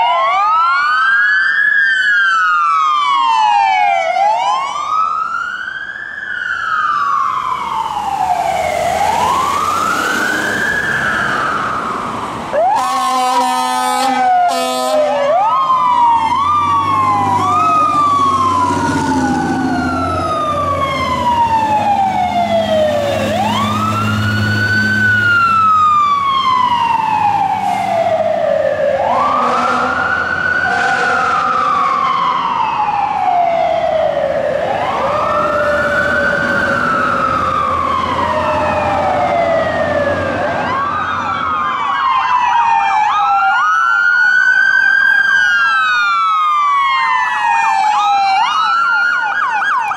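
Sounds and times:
fire truck siren wailing: 0.0s - 49.9s
truck engine rumble: 7.1s - 14.5s, 15.1s - 41.8s.

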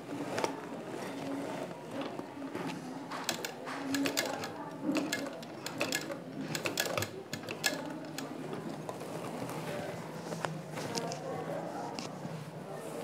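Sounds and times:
sewing machine clicking: 3.2s - 9.0s.

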